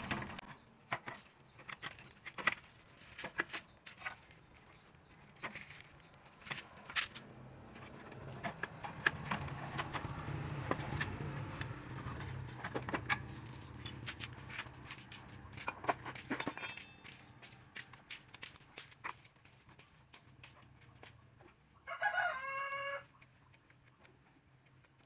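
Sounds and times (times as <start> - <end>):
wrench and nuts clinking: 12.9 - 14.7, 15.5 - 17.6.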